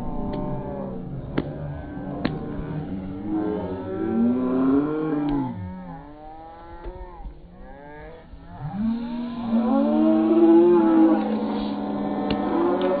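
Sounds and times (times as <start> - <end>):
spectators yelling and cheering: 9.4 - 13.0.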